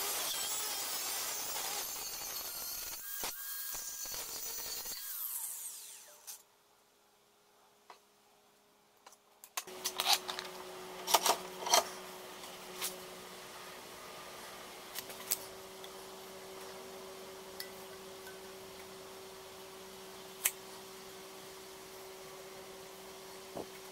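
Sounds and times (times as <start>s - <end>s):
low electrical hum: 6.0s - 23.9s.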